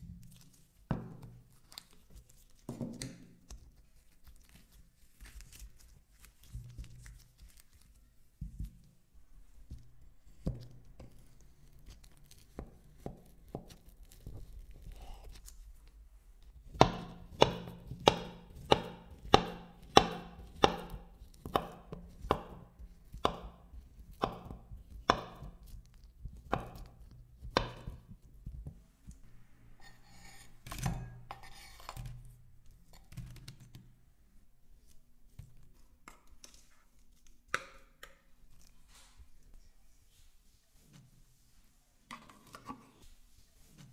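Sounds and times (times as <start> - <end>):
banana being peeled: 3.4 - 8.1.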